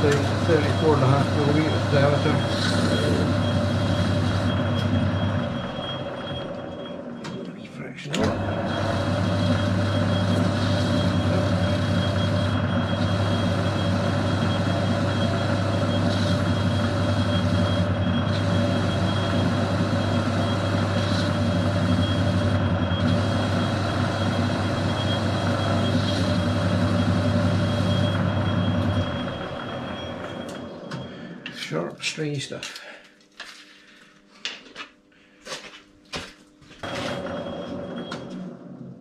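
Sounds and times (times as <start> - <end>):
lathe motor hum: 0.0 - 31.9, 36.8 - 39.0.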